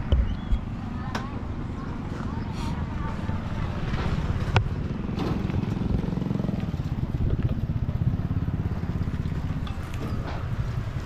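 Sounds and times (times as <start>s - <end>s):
engine running with a putter: 0.0s - 11.0s.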